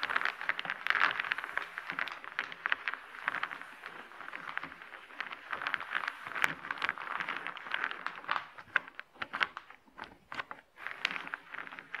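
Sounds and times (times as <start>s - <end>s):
wooden discs clacking: 0.0s - 12.0s.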